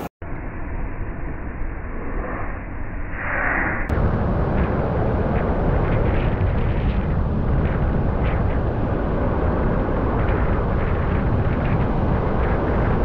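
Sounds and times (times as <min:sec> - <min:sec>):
wind rumble on microphone: 0:03.3 - 0:13.0
ocean surf breaking: 0:03.9 - 0:13.0.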